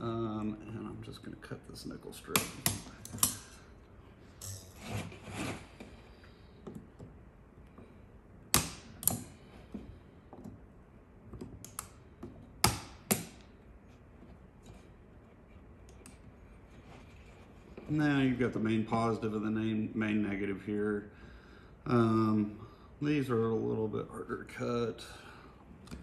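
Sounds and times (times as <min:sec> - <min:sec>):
side cutters snapping metal strip: 0:02.3 - 0:03.5, 0:08.5 - 0:09.3.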